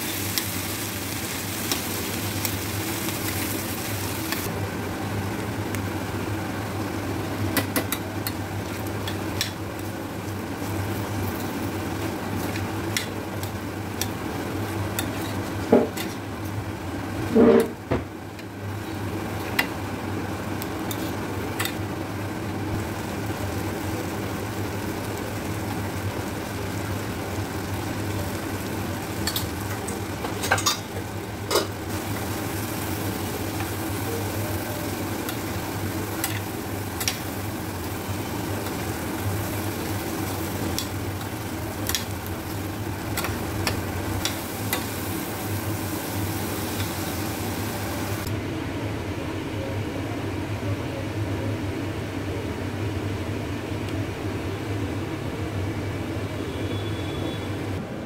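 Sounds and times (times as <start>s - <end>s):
vegetables sizzling in butter: 0.0s - 4.5s, 18.5s - 48.3s.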